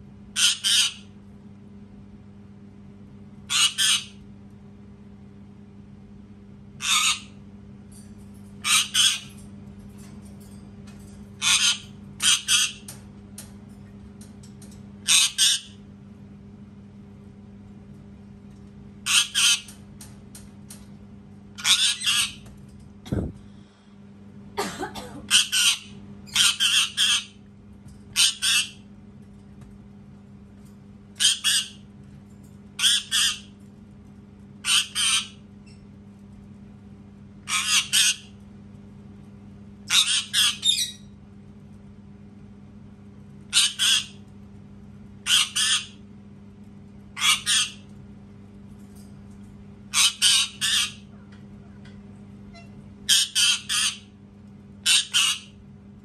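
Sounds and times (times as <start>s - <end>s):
steady low hum: 0.0s - 56.0s
parakeet screeching: 0.4s - 1.1s, 3.5s - 4.2s, 6.8s - 7.4s, 8.6s - 9.4s, 11.4s - 12.9s, 15.0s - 15.8s, 19.1s - 19.8s, 21.6s - 22.4s, 25.3s - 27.4s, 28.2s - 28.8s, 31.2s - 31.8s, 32.8s - 33.5s, 34.6s - 35.4s, 37.5s - 38.3s, 39.9s - 41.1s, 43.5s - 44.2s, 45.2s - 46.0s, 47.2s - 47.9s, 49.9s - 51.1s, 52.5s - 54.1s, 54.8s - 55.6s.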